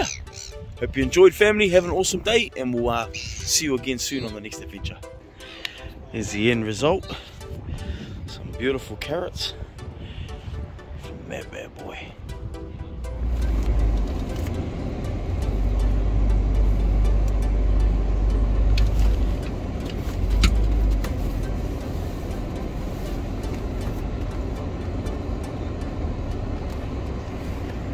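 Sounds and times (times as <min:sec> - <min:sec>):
vehicle cabin rumble: 0:06.2 - 0:27.9.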